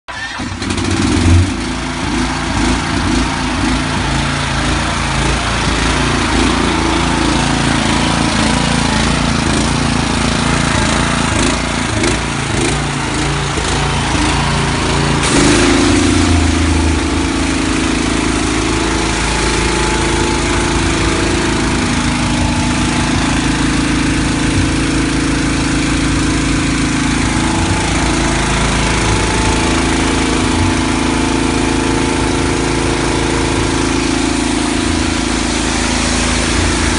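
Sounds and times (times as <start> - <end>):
pressure washer engine running: 0.1 - 36.9.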